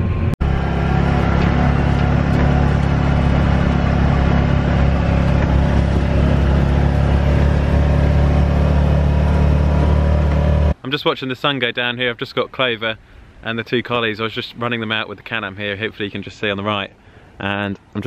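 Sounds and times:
utility vehicle engine running: 0.0s - 10.8s.

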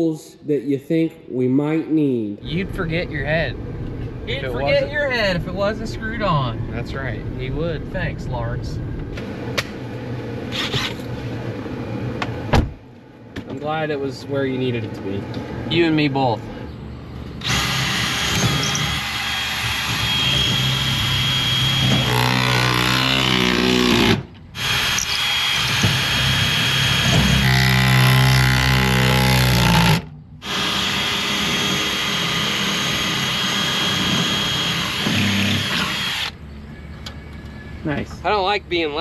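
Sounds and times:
electric drill boring into wood: 17.4s - 36.4s.

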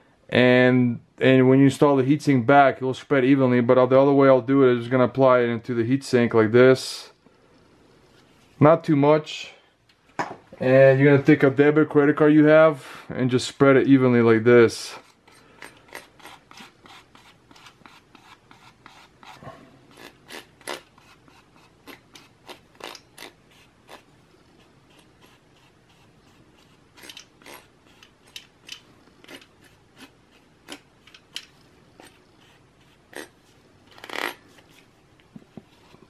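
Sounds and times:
plastic card scraping metal: 15.1s - 31.4s.

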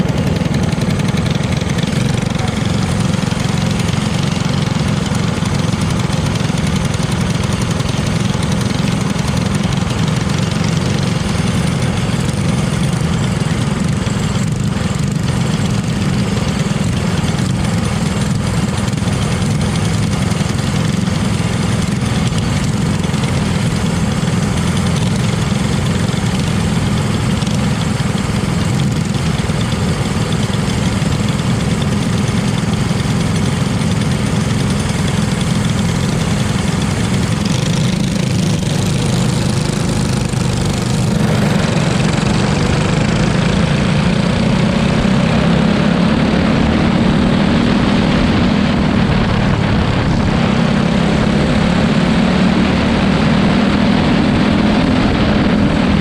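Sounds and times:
kart engine idling: 0.0s - 56.0s
other karts idling nearby: 0.0s - 56.0s.

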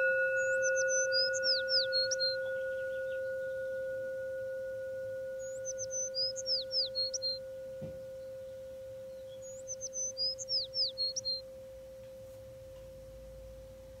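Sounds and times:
bird chirping and whistling: 0.0s - 4.0s, 5.2s - 11.5s
singing bowl ringing: 0.0s - 14.0s.

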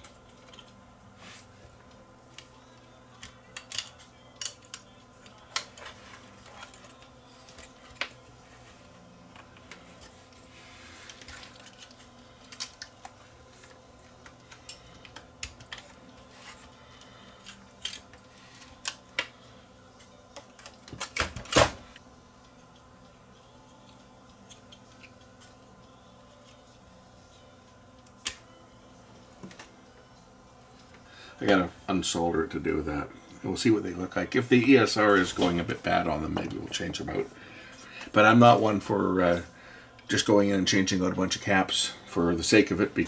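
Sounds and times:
faint steady hum: 0.0s - 43.0s
small tools clicking and knocking: 3.2s - 8.2s.

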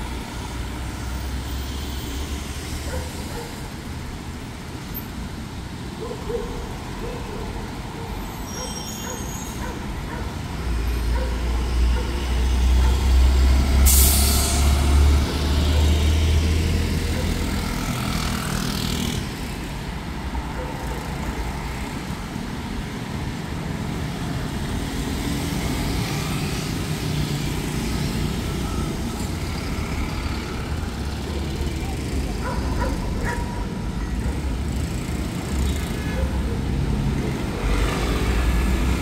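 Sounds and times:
cars passing: 0.0s - 39.0s
sharp hiss: 13.8s - 14.8s.

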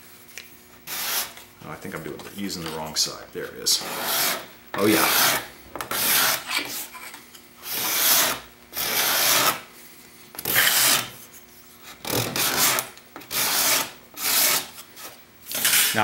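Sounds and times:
hand scraper shaving wood: 0.8s - 2.9s, 3.6s - 7.0s, 7.6s - 9.6s, 10.4s - 11.2s, 11.8s - 16.0s.

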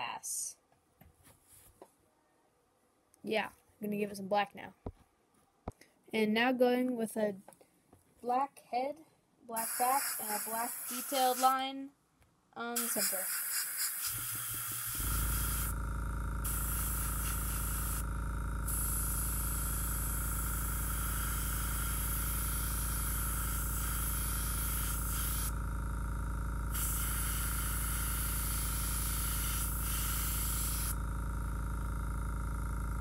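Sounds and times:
airbrush spraying hiss: 9.6s - 11.6s, 12.8s - 15.8s, 16.4s - 18.0s, 18.7s - 25.6s, 26.7s - 31.0s
low hum: 14.2s - 33.0s.

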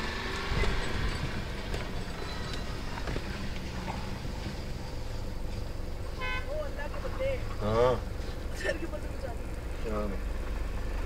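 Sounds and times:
vehicle engine and tyres rumbling: 0.0s - 11.0s.

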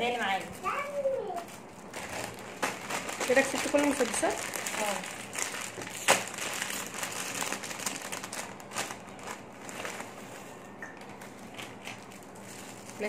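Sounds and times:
snack bag crinkling: 1.4s - 10.2s, 11.2s - 13.0s
sharp crack of bag: 5.9s - 8.1s.

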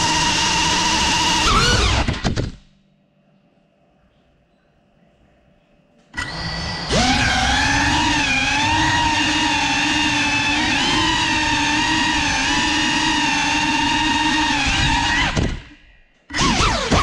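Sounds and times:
drone motors whining: 0.0s - 2.5s, 6.2s - 17.0s.

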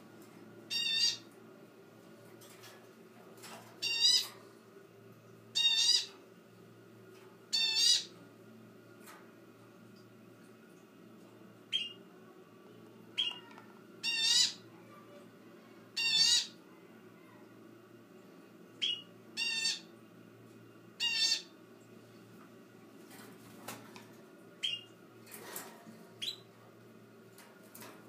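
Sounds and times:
bird buzzy calls: 0.7s - 1.3s, 5.5s - 6.2s, 7.5s - 8.2s, 13.2s - 14.7s, 16.0s - 16.6s, 18.8s - 19.9s, 21.0s - 21.6s, 24.6s - 25.0s.

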